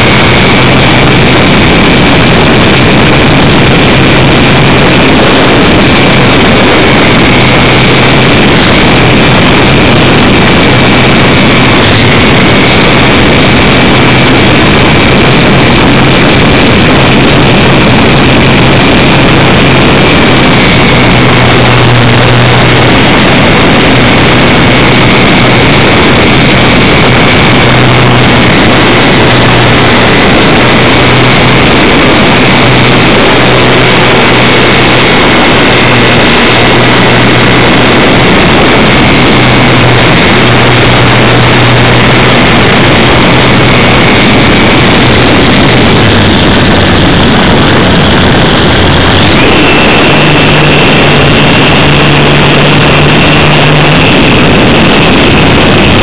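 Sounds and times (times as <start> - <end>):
high electric motor whine: 0.0 - 56.0
propeller and wind rushing: 0.0 - 56.0.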